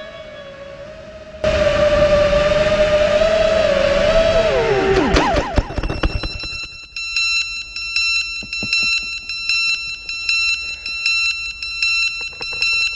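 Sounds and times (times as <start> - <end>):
drone motors whining down: 0.0 - 6.7
high-pitched beeping alarm: 5.6 - 12.9
sharp knocks: 8.4 - 9.2.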